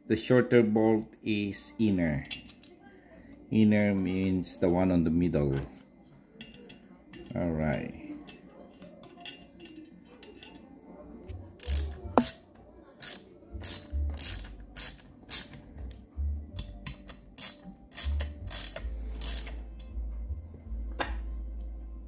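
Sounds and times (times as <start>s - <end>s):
ratchet wrench clicking: 11.6s - 12.4s, 13.0s - 16.0s, 16.6s - 19.6s.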